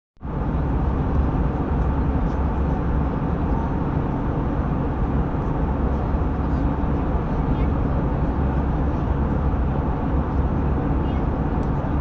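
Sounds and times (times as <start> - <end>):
jet engine cabin roar: 0.2 - 12.0.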